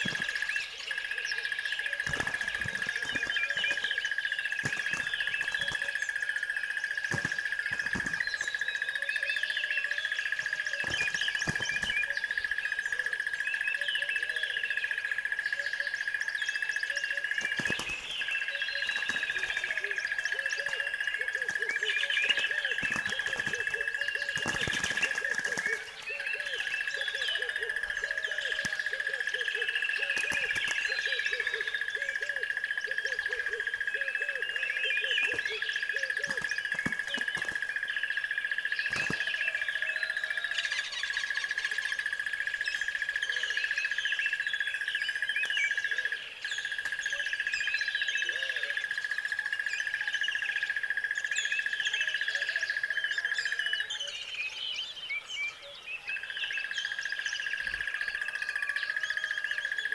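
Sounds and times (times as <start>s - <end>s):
birds chirping: 0.0s - 59.9s
sharp cracks: 2.0s - 6.1s, 7.0s - 8.7s, 17.4s - 26.0s, 30.0s - 31.1s.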